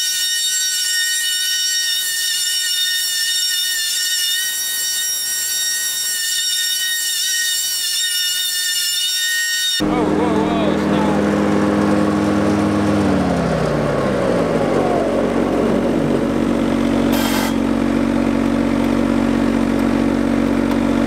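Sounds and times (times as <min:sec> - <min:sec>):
lawn mower engine running: 0:09.8 - 0:21.0.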